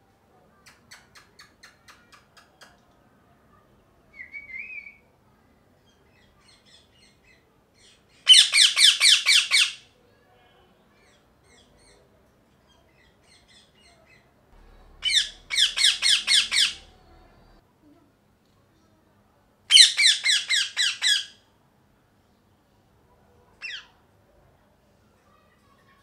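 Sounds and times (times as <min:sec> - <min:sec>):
parakeet squawking shrilly: 0:08.3 - 0:09.8, 0:14.9 - 0:17.0.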